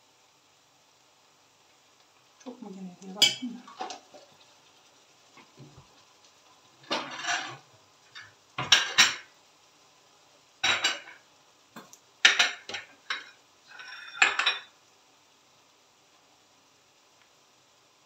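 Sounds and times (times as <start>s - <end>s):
pots and cutlery clinking: 3.2s - 4.3s, 6.8s - 9.3s, 10.6s - 11.2s, 11.8s - 14.8s.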